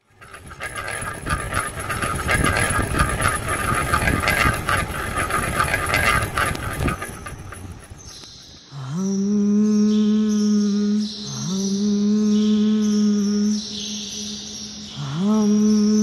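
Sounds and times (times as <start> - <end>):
train rumble: 0.0 - 8.3
wheels clattering over track: 0.0 - 8.5.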